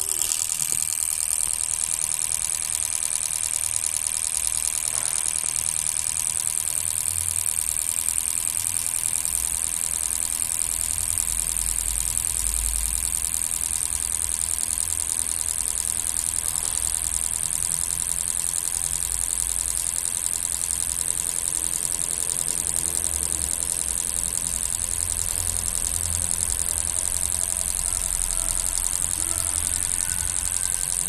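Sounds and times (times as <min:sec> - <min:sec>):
fuel injectors clicking: 0:00.0 - 0:31.0.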